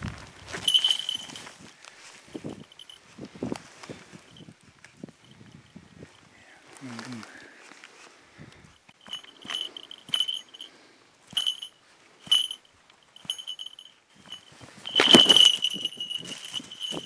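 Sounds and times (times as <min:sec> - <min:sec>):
rustling: 0:00.0 - 0:05.0, 0:06.1 - 0:17.0
bell jingling: 0:00.6 - 0:01.6, 0:02.4 - 0:03.0, 0:09.0 - 0:17.0.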